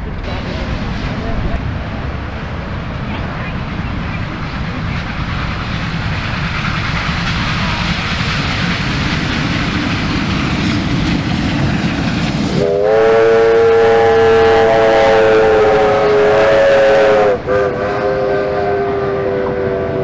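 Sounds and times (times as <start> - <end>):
low rumble: 0.0 - 12.7
steam locomotive exhaust roar: 0.0 - 20.0
steam whistle chord: 12.6 - 20.0.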